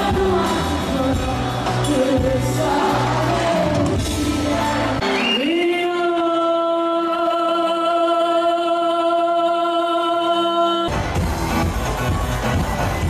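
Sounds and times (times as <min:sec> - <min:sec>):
band playing: 0:00.0 - 0:06.5, 0:10.9 - 0:13.0.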